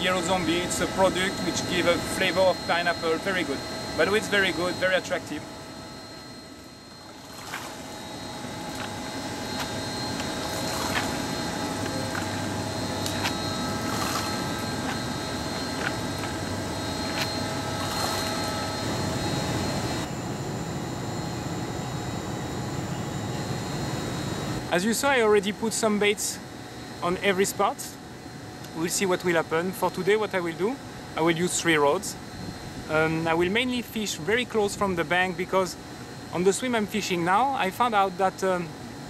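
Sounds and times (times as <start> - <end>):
low rumble and hum: 0.0 - 24.7.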